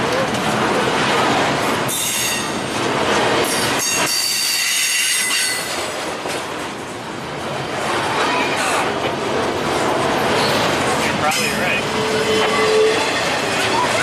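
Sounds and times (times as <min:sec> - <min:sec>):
freight train wheels rumbling on rail: 0:00.0 - 0:14.0
steel wheels squealing: 0:03.5 - 0:05.7, 0:11.3 - 0:14.0.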